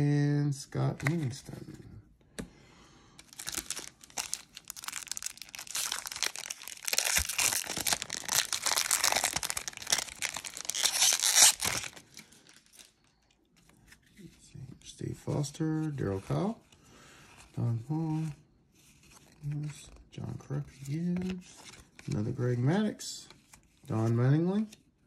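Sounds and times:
foil pack crinkling and tearing: 0:03.2 - 0:13.3.

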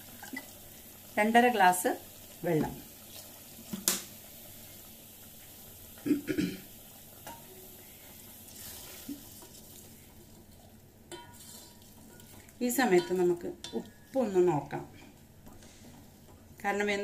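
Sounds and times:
faint steady hiss: 0:00.0 - 0:17.0
spoon stirring rice in pot: 0:06.9 - 0:17.0
spoon knocks and scrapes: 0:11.1 - 0:13.8.

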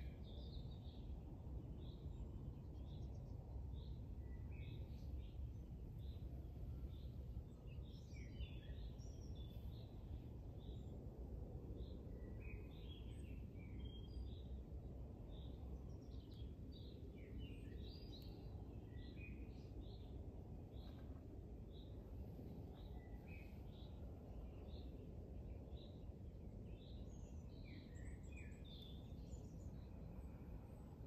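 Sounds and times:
low rumble of background noise: 0:00.0 - 0:31.0
small birds chirping: 0:02.7 - 0:10.9, 0:15.3 - 0:22.0, 0:22.6 - 0:30.8.

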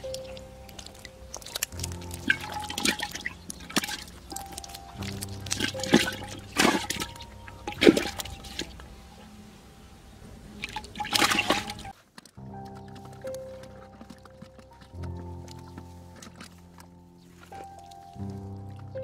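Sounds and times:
music with held notes: 0:00.0 - 0:19.0
water splashing and sloshing: 0:00.0 - 0:19.0.

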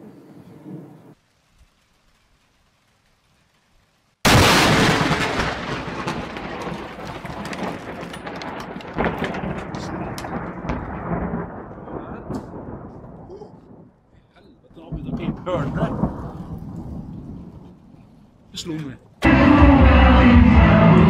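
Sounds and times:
thunder rumbling: 0:00.0 - 0:01.3, 0:04.2 - 0:18.6
loud thunder crack: 0:04.2 - 0:14.0, 0:14.8 - 0:17.7.

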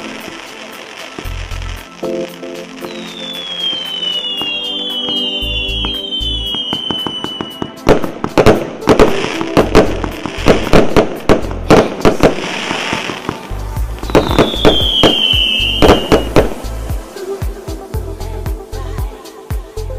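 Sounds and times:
firework whistle falling in pitch: 0:00.0 - 0:10.8, 0:11.7 - 0:18.0.

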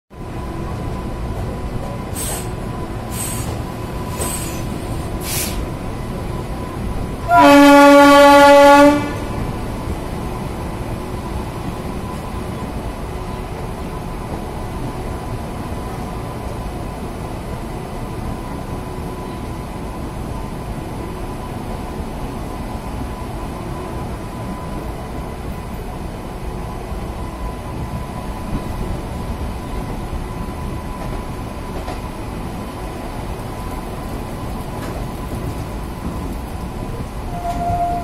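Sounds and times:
train rumbling on rails: 0:00.1 - 0:38.0
locomotive horn: 0:07.2 - 0:09.5, 0:37.2 - 0:38.0.

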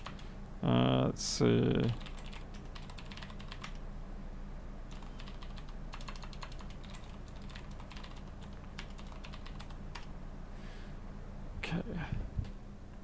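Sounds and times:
computer keyboard typing: 0:00.0 - 0:00.2, 0:01.8 - 0:03.8, 0:04.9 - 0:10.1
steady low hum: 0:00.0 - 0:13.0.

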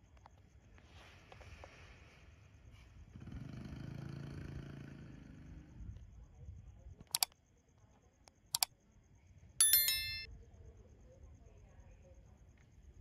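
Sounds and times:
mouse clicks: 0:07.1 - 0:07.4.

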